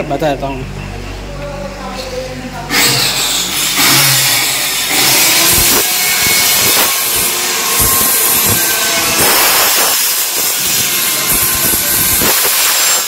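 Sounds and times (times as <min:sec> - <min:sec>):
power saw cutting wood: 0:02.7 - 0:13.0.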